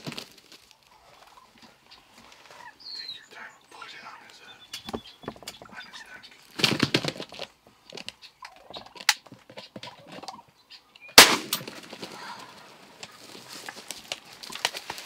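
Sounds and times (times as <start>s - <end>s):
turkey gobbling: 0.8s - 6.6s, 8.0s - 13.8s
shotgun shot: 11.2s - 11.8s.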